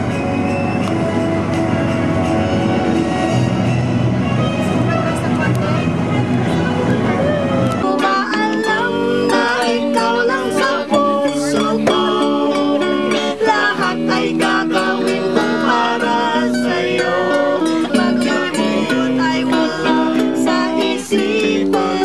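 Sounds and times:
acoustic string instrument: 0.0s - 22.0s
electric guitar: 0.0s - 22.0s
woman singing: 7.8s - 22.0s.

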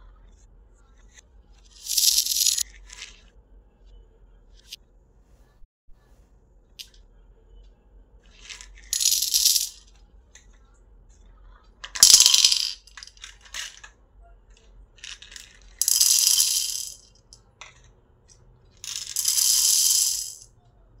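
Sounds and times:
beads rattling in glass bowl: 1.7s - 3.2s, 8.3s - 9.8s, 12.0s - 13.8s, 15.0s - 17.4s, 18.8s - 20.5s.

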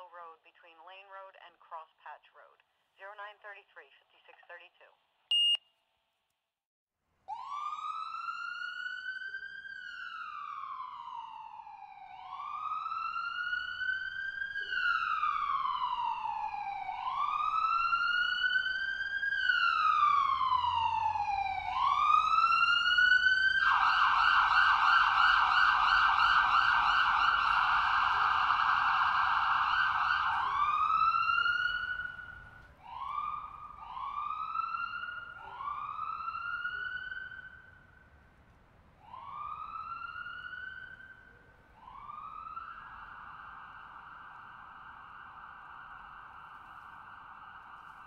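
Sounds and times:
electronic siren wailing and yelping: 9.9s - 37.5s.

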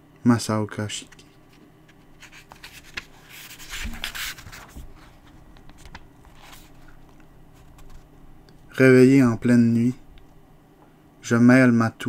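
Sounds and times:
book pages rustling: 1.1s - 8.1s.

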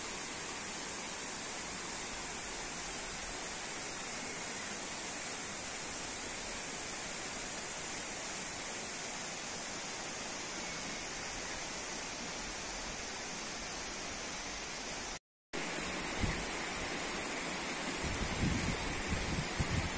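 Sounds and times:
outdoor ambient hiss: 0.0s - 19.9s
wind bumps on microphone: 18.0s - 19.9s.

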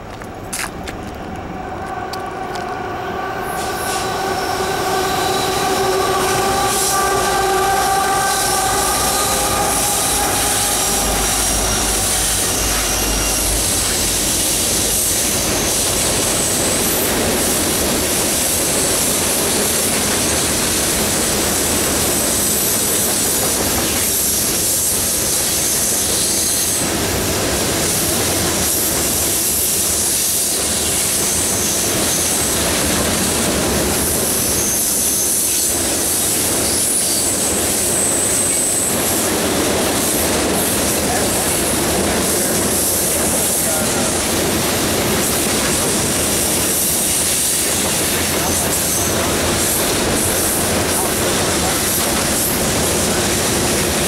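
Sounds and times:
diesel locomotive drone: 0.0s - 54.0s
wheel flange squeal: 3.0s - 17.6s.

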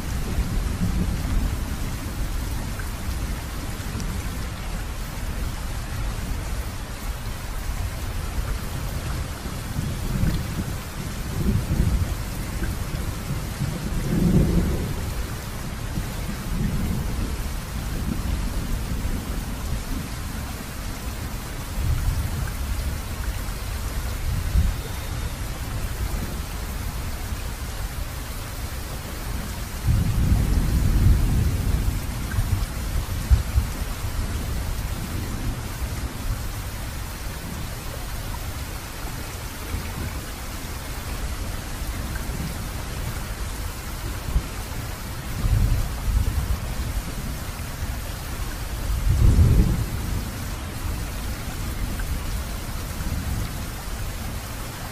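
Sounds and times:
steady rain: 0.0s - 54.9s
thunder rumbling: 9.7s - 19.3s, 29.3s - 36.2s, 48.8s - 53.8s.

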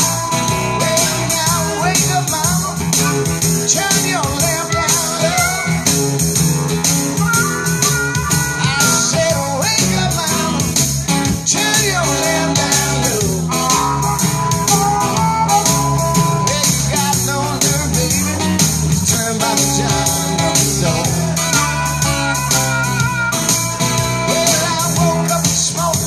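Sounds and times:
acoustic guitar strumming: 0.0s - 26.0s
harmonica playing: 0.0s - 26.0s.

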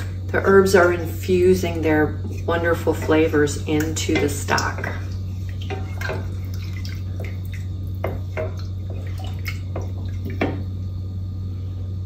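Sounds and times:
steady low hum: 0.0s - 12.0s
stock bubbling in saucepan: 0.0s - 12.0s
wooden spoon knocking in pot: 8.0s - 10.7s.

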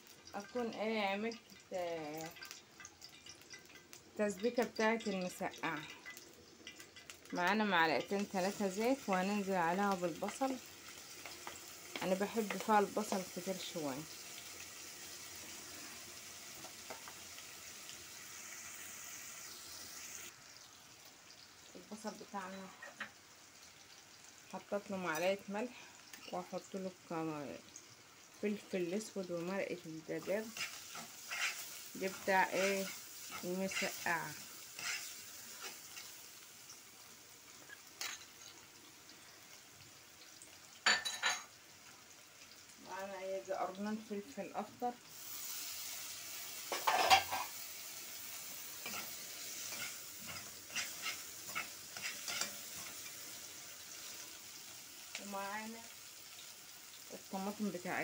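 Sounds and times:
onion sizzling in hot oil: 0.0s - 58.0s.

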